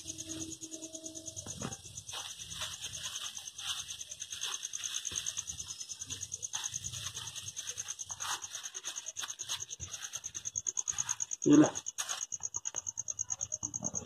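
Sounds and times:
crickets chirping: 0.0 - 14.0
plastic bag rustling: 1.4 - 12.5.

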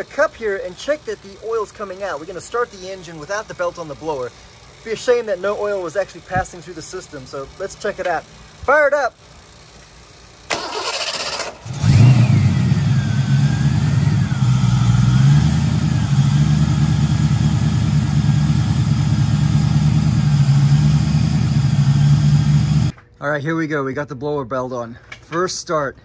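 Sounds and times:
car engine idling: 9.3 - 22.9
engine starter cranking: 10.4 - 15.3.

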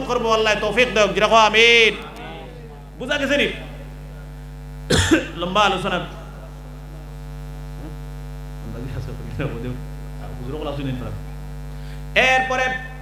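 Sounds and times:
man's voice: 0.0 - 4.3, 5.1 - 6.8, 12.2 - 13.0
electrical mains hum: 0.0 - 13.0
faint voices: 2.0 - 4.5.

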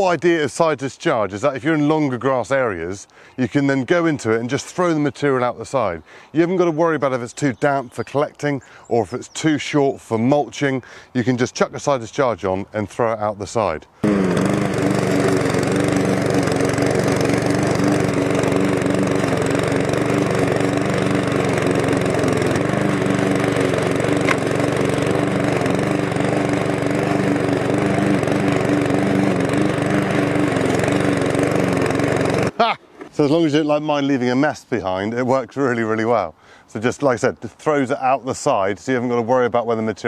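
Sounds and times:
lawn mower cutting grass: 14.0 - 33.2.

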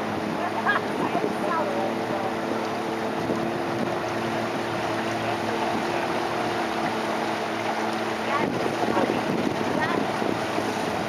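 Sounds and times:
boat motor running: 0.0 - 11.0
wind buffeting microphone: 2.9 - 11.0.

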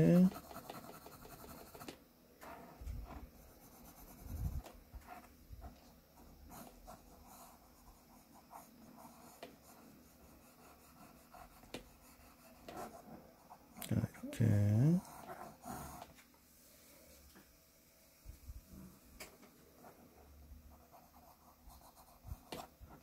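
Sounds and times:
pencil scratching on paper: 0.0 - 13.7, 14.7 - 16.1, 19.8 - 23.0.

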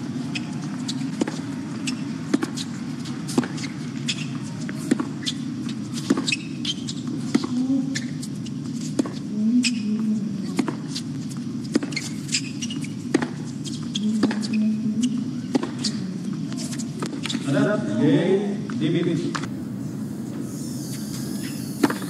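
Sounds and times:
tennis ball bouncing: 0.9 - 2.7, 3.3 - 5.4, 6.0 - 6.4, 7.3 - 7.6, 11.7 - 16.0, 19.3 - 22.0
racquets striking tennis ball: 1.0 - 6.5, 11.7 - 13.5, 15.5 - 16.0.

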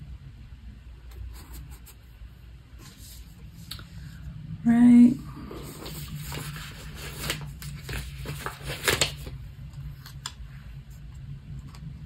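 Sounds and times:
low steady hum: 0.0 - 12.0
paper rustling and tapping: 6.0 - 9.4.

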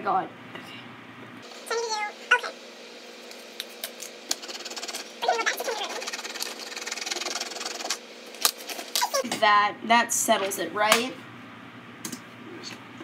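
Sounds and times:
crayon scribbling on paper: 4.4 - 8.0.

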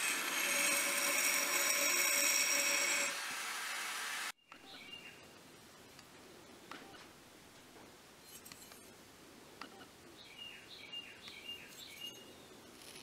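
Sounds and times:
faint background noise: 3.3 - 13.0
songbird chirping: 4.4 - 6.0, 9.6 - 12.7.

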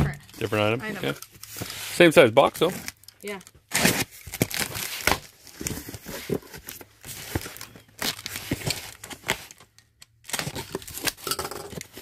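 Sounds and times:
knife scraping cardboard: 1.5 - 2.0.

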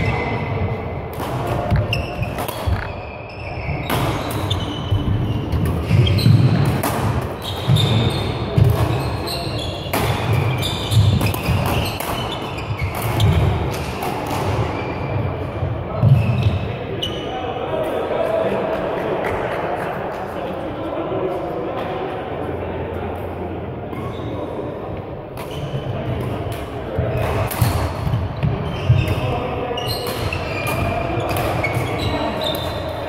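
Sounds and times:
rackets hitting shuttlecocks: 1.1 - 3.1, 3.8 - 14.8, 25.4 - 29.3, 29.9 - 33.0
shoes squeaking on court: 1.6 - 6.6, 7.4 - 15.2, 27.1 - 32.9.

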